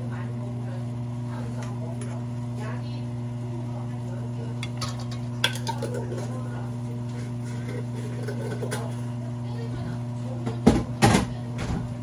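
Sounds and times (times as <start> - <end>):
utensil clinking against cookware: 4.6 - 6.3.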